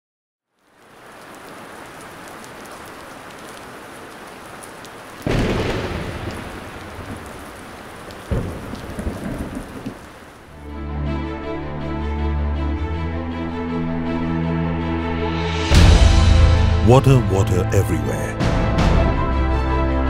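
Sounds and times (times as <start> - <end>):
steady rain: 0.4 - 10.9, 15.7 - 20.0
thunder rumbling: 5.1 - 10.4
sharp crack of thunder: 5.2 - 10.1.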